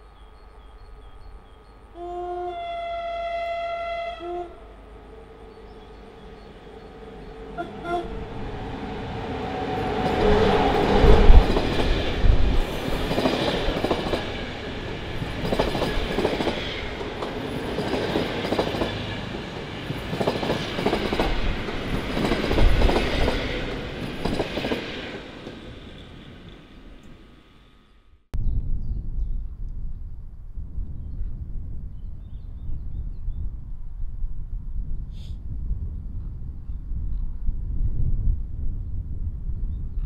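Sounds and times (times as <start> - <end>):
electric locomotive passing: 0.0 - 28.0
train wheels clicking over rail joints: 9.9 - 27.2.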